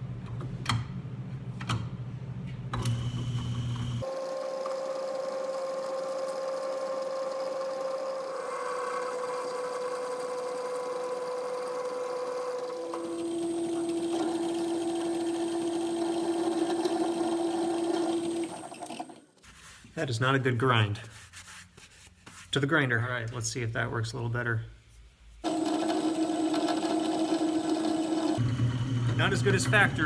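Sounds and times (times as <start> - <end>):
lathe drilling hum: 2.9 - 19.3, 25.4 - 30.0.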